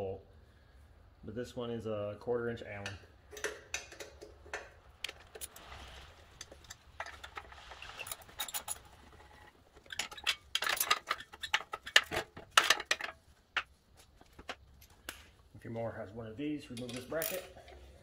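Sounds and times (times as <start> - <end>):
small metal clicks and taps: 2.8 - 5.5.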